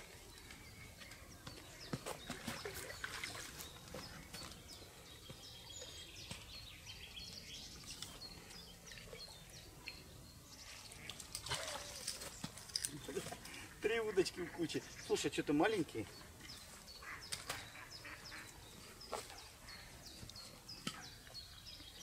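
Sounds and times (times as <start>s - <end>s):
water splashing and trickling: 0.0s - 6.6s, 7.6s - 16.7s
small birds chirping: 0.0s - 22.0s.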